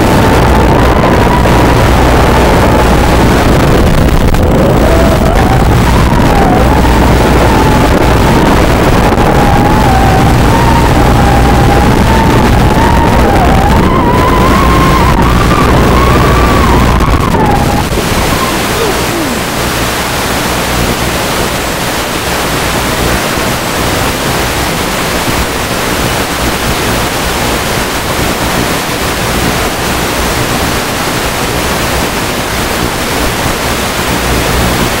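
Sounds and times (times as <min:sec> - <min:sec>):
loud static hiss: 0:00.0 - 0:35.0
wavering high whine: 0:00.0 - 0:35.0
downward sliding tone: 0:00.2 - 0:20.9.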